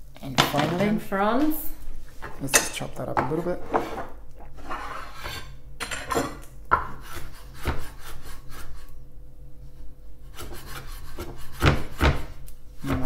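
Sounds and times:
knife chopping on wooden board: 10.4s - 13.0s.

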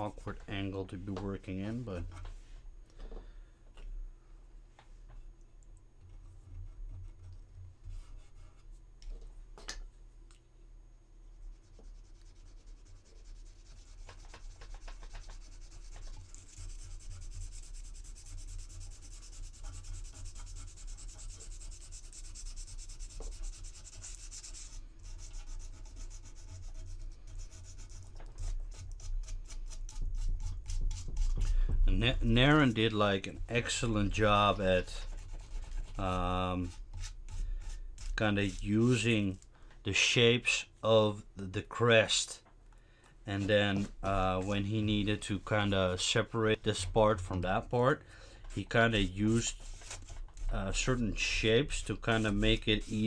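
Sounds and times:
rubbing and scraping on resin: 11.4s - 39.5s, 43.3s - 47.8s, 48.5s - 53.0s.

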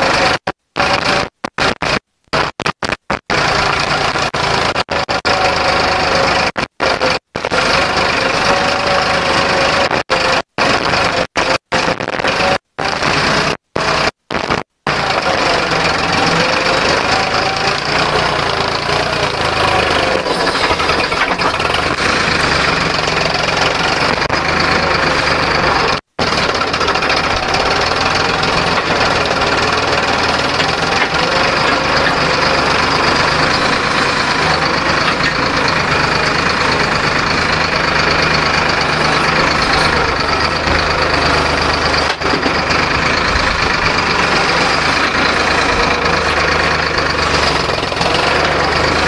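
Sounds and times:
tractor diesel engine under load: 0.0s - 49.0s.

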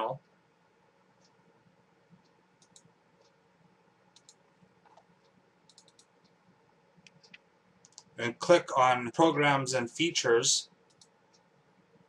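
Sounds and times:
faint computer mouse clicks: 2.1s - 3.4s, 4.1s - 6.4s, 7.0s - 8.1s, 10.9s - 11.5s.

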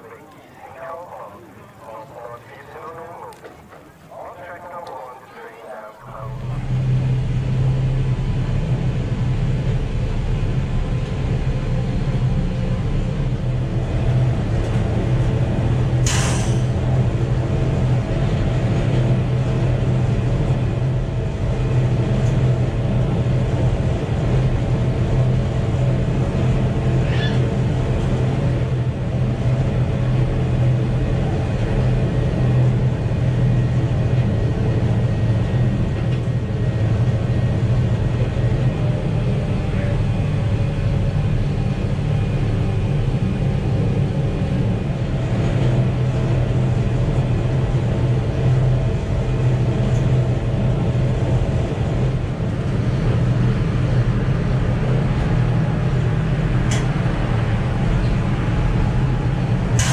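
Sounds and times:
vehicle engine drone: 0.0s - 59.9s
short sharp hiss: 16.0s - 16.7s.

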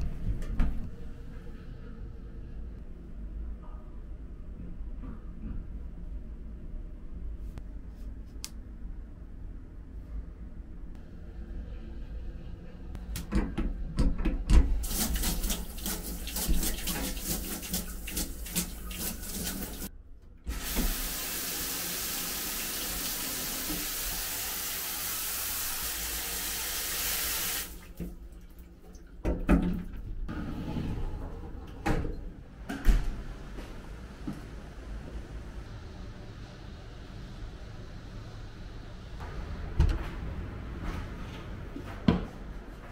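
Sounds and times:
shower water spraying: 14.8s - 19.9s, 20.5s - 28.0s
knocks and splashes: 29.0s - 30.1s.

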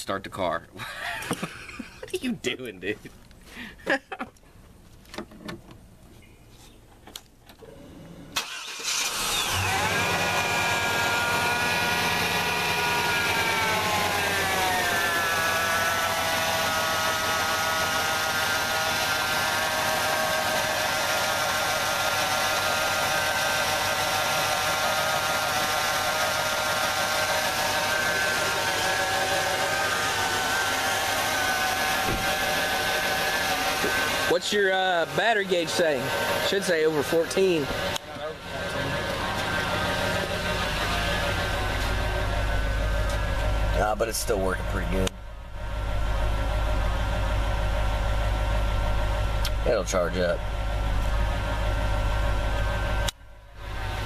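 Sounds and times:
car engine starting and idling: 7.1s - 54.0s
engine whine: 7.1s - 54.0s.

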